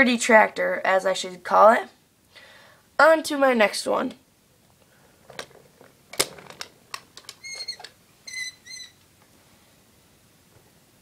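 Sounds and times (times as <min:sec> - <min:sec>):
toy models clicking and knocking: 0:05.3 - 0:08.0
high-pitched squeaks: 0:07.3 - 0:09.0.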